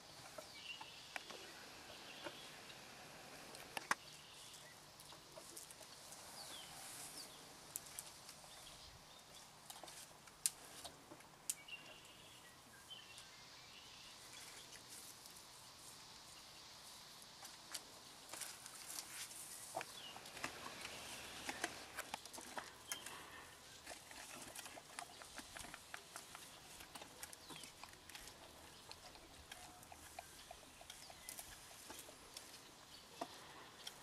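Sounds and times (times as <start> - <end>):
birds chirping: 0.0 - 7.6, 10.9 - 14.8, 19.6 - 34.0
elephant chewing branches: 17.4 - 34.0.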